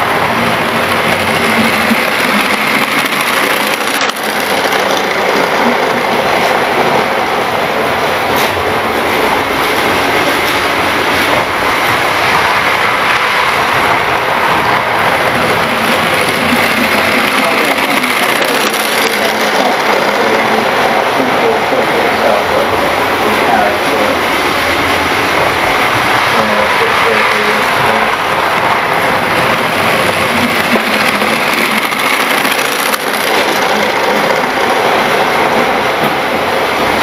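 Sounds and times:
model train rattling whir: 1.3s - 5.4s.

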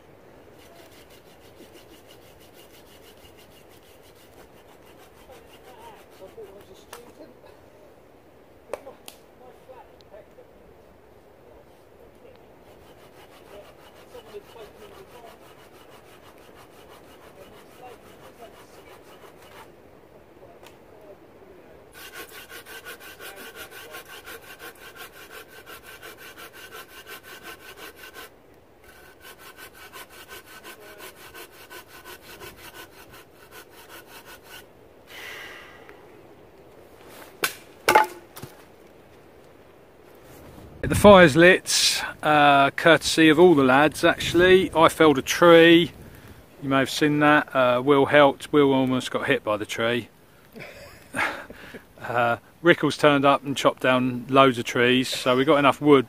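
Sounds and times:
hand saw cutting a log: 0.6s - 6.8s, 12.6s - 19.7s, 21.9s - 34.7s.

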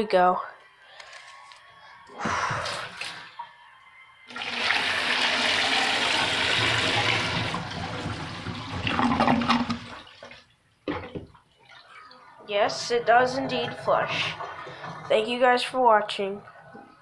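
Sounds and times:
toilet flushing: 4.3s - 11.2s, 12.6s - 15.7s.

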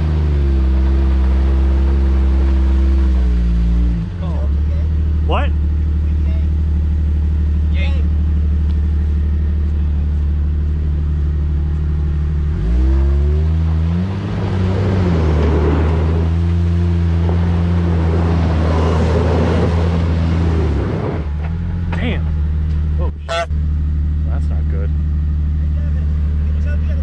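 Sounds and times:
engine revving under load: 0.0s - 6.2s, 10.7s - 23.5s.

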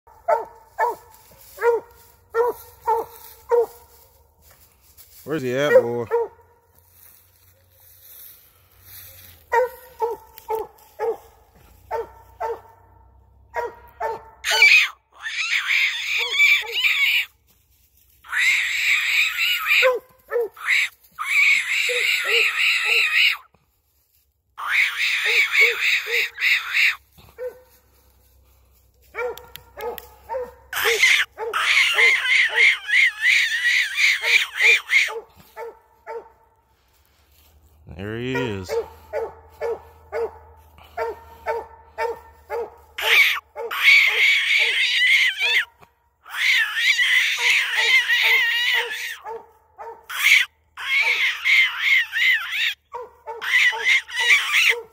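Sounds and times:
hound barking: 0.1s - 4.2s, 5.6s - 8.3s, 8.9s - 17.2s, 18.6s - 23.4s, 24.8s - 28.0s, 29.0s - 36.6s, 38.2s - 45.8s, 46.4s - 52.0s, 52.6s - 54.9s
dog's high wavering cry: 13.6s - 17.3s, 18.3s - 23.5s, 24.6s - 27.6s, 29.2s - 36.3s, 41.0s - 54.9s.

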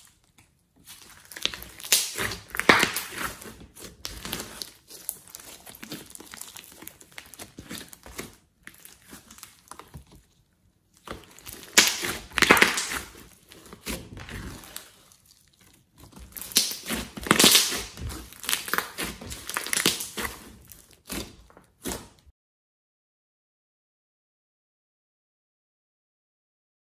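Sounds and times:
slime squelching: 0.0s - 22.3s
slime crackling pops: 1.2s - 3.3s, 11.4s - 13.2s, 16.3s - 20.3s.

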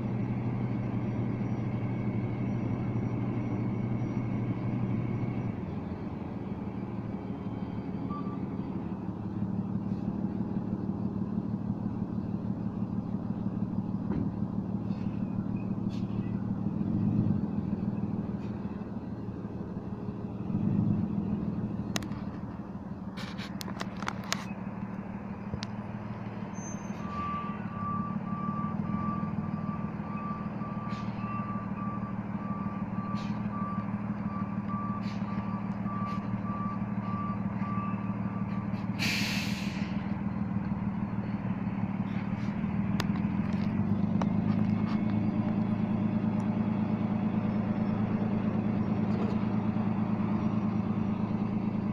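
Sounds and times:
truck engine running: 0.0s - 51.9s
reversing beeper: 0.1s - 9.0s, 26.4s - 40.4s
air brakes hissing: 35.0s - 35.5s, 38.7s - 40.1s.

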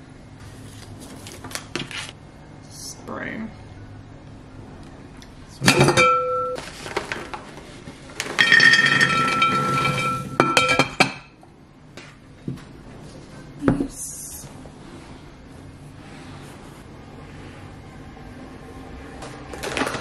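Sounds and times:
ceramic scraping and clinking: 8.4s - 11.2s.

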